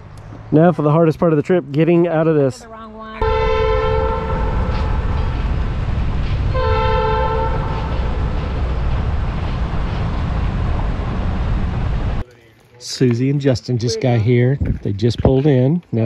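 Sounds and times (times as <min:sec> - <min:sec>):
car wind and road noise: 0:00.0 - 0:12.3
car horn blasts: 0:03.2 - 0:05.4, 0:06.5 - 0:08.2.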